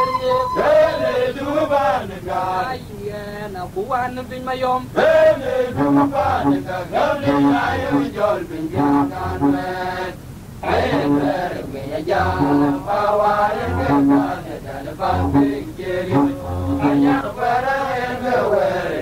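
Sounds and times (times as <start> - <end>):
men singing chant: 0.0 - 3.5, 4.8 - 19.0
low pulsing note: 5.8 - 9.7, 10.7 - 11.6, 12.2 - 17.3.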